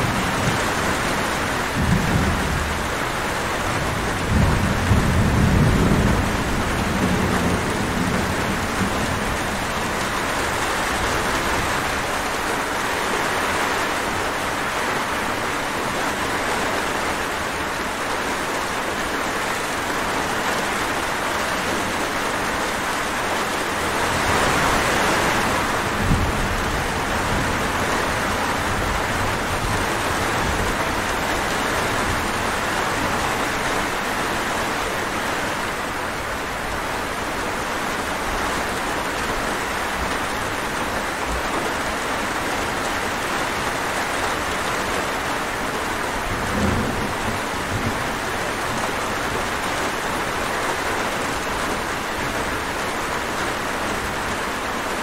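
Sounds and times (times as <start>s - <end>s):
low rumble of thunder: 0.0s - 12.1s, 24.2s - 34.0s, 46.0s - 49.7s
steady rain falling: 0.0s - 55.0s.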